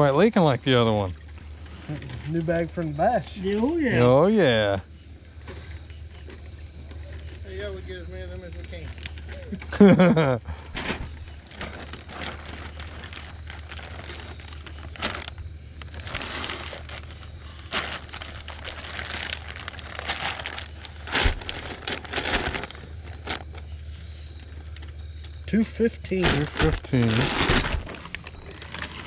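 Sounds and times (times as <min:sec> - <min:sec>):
steady low hum: 0:00.0 - 0:29.0
plastic bag crinkling: 0:10.8 - 0:25.0, 0:26.2 - 0:29.0.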